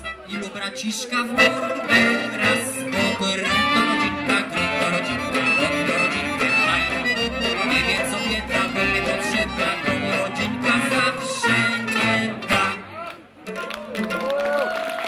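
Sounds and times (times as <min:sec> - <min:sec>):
banjo and guitar strumming: 0:01.2 - 0:12.9
double bass: 0:01.2 - 0:12.9.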